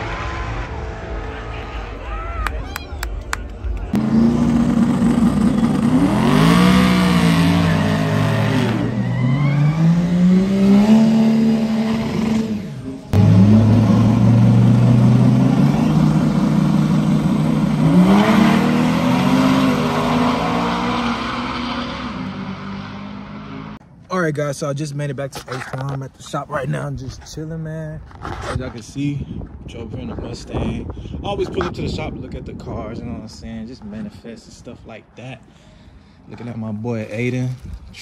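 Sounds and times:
truck engines revving: 0:00.0 - 0:23.8.

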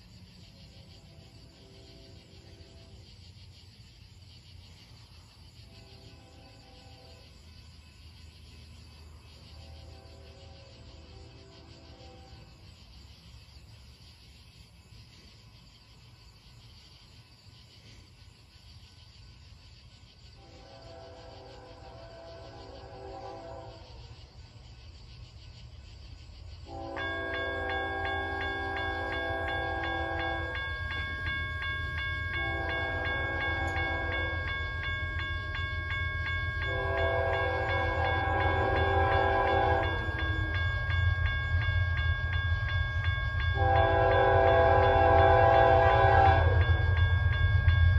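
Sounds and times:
crickets chirping: 0:00.0 - 0:47.9
low train rumble: 0:00.0 - 0:47.9
train air horn blasts: 0:05.7 - 0:07.4, 0:09.8 - 0:12.6, 0:20.4 - 0:24.0, 0:26.7 - 0:31.2, 0:32.2 - 0:35.0, 0:36.6 - 0:40.8, 0:43.6 - 0:46.9
crossing bell ringing: 0:26.8 - 0:47.9.

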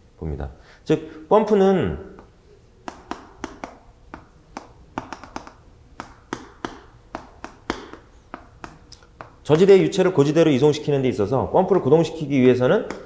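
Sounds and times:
chalk tapping on a blackboard: 0:02.2 - 0:09.7, 0:12.4 - 0:13.0.

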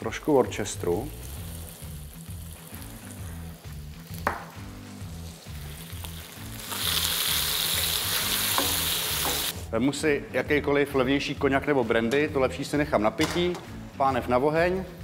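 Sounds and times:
food sizzling in a frying pan: 0:00.1 - 0:09.6.

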